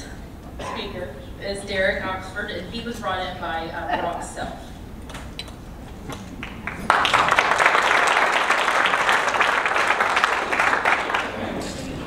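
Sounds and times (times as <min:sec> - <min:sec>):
audience clapping: 0:06.1 - 0:12.0.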